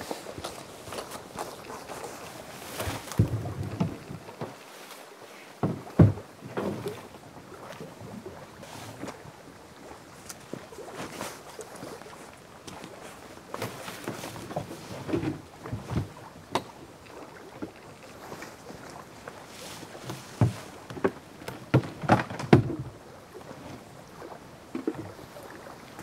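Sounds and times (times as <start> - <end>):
gear thumping against canoe hull: 0.0 - 4.7, 5.6 - 7.1, 13.5 - 16.8, 19.8 - 23.0
shuffling footsteps: 0.0 - 5.4.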